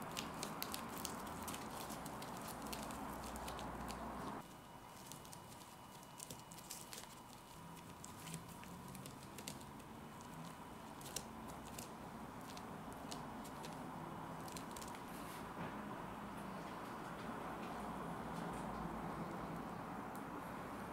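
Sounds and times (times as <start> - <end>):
fingers pressing sticky rice: 0.0 - 4.4.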